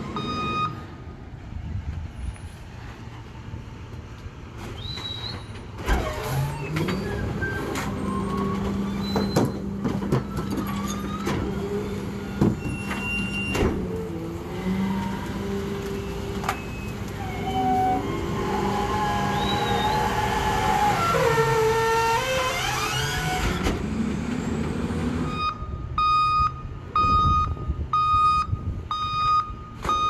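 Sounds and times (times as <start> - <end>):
garbage truck engine revving: 13.7 - 25.3.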